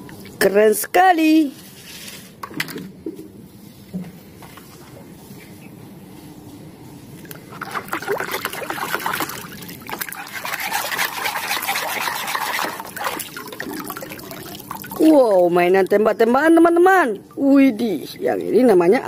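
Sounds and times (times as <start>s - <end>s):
water sloshing in plastic tub: 7.2s - 18.8s.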